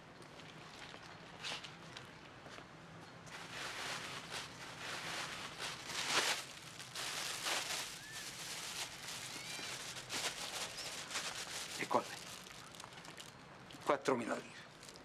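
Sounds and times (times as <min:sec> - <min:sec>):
rustling and handling noises: 0:03.3 - 0:15.0
bird chirps: 0:07.9 - 0:08.4, 0:09.2 - 0:09.8.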